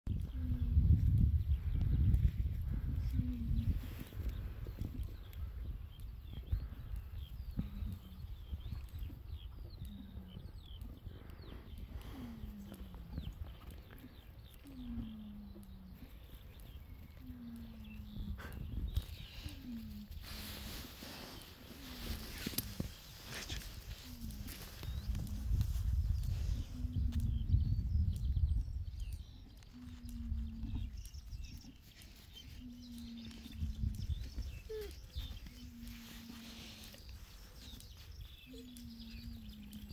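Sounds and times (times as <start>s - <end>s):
small birds chirping: 0.1s - 39.9s
wind rumble on microphone: 0.1s - 39.9s.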